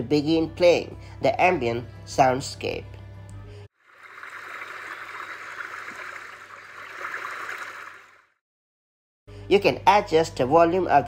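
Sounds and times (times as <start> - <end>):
babbling stream water: 3.8 - 8.2.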